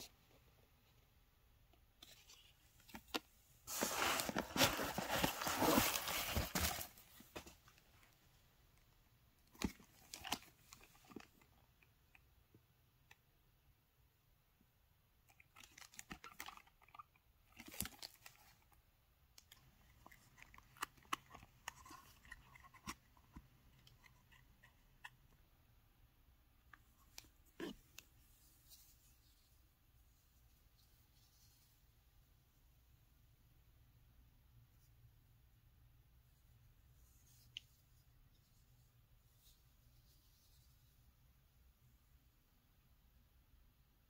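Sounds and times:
bubble wrap crinkling: 3.7 - 7.4.

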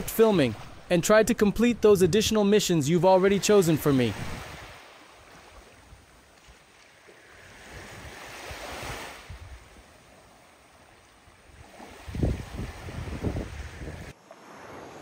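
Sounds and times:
sea waves washing on shore: 0.0 - 15.0
wind buffeting microphone: 7.6 - 9.8, 11.5 - 14.2.

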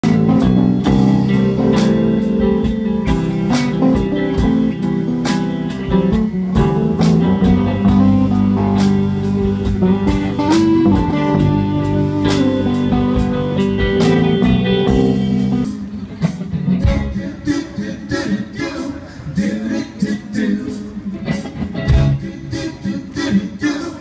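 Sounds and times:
drum kit beat: 0.0 - 17.2, 21.8 - 22.2
electric guitars: 0.0 - 17.8, 20.6 - 23.2.

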